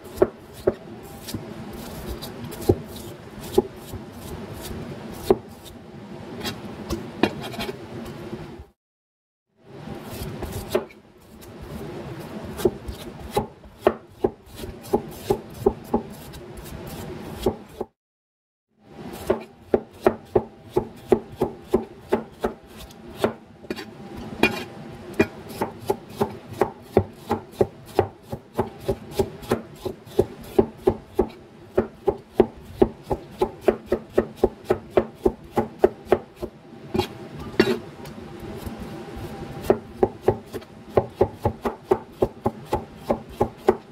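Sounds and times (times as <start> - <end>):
knife slicing on a cutting board: 7.2 - 7.8, 10.1 - 11.0, 12.6 - 17.9, 19.1 - 37.8.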